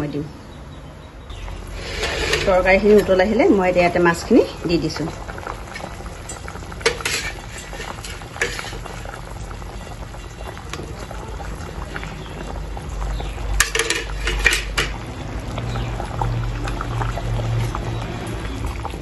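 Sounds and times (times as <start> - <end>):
curry boiling: 1.3 - 19.0
metal spatula scraping a pan: 1.7 - 3.2, 6.8 - 9.0.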